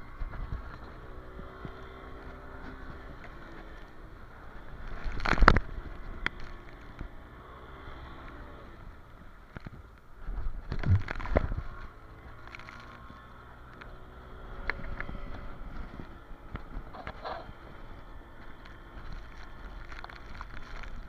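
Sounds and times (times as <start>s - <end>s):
motorboat engine humming: 0.0s - 21.0s.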